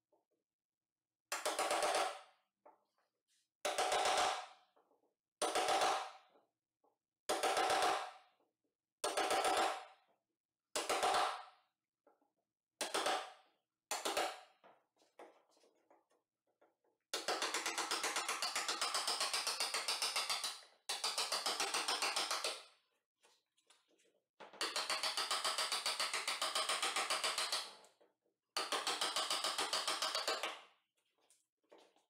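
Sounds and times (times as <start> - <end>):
hammer striking chisel: 1.3 - 2.3, 3.7 - 4.6, 5.4 - 6.2, 7.3 - 8.2, 12.8 - 14.6, 17.1 - 22.7, 24.6 - 27.8, 28.6 - 30.6.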